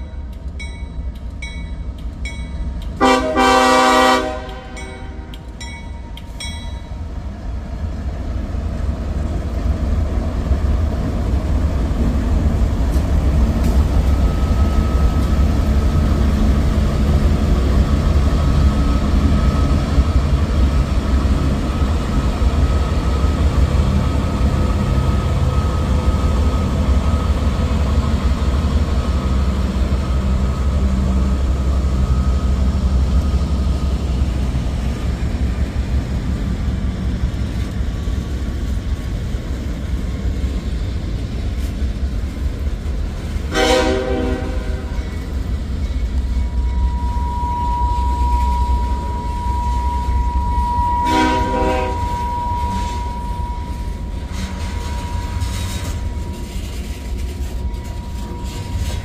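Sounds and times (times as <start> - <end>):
train rumbling on rails: 0.0 - 59.0
train horn blast: 3.0 - 5.3, 43.5 - 45.0, 46.7 - 59.0.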